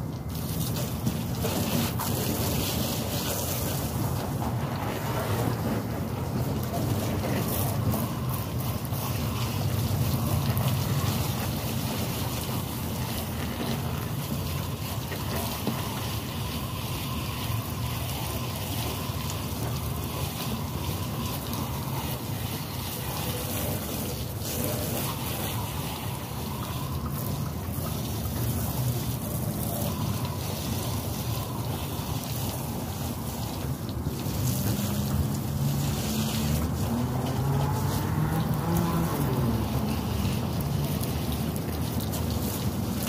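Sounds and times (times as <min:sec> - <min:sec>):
hose water spraying: 0:00.0 - 0:43.0.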